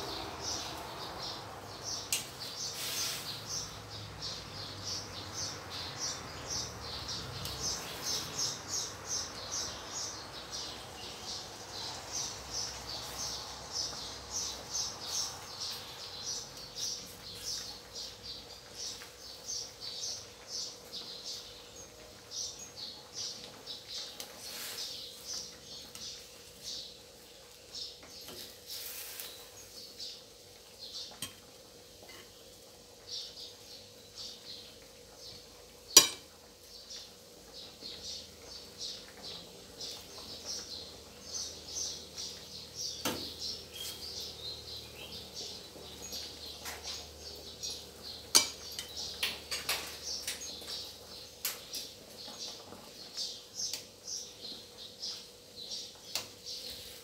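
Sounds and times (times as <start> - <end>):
metal tongs clinking on a wok: 48.3 - 50.0.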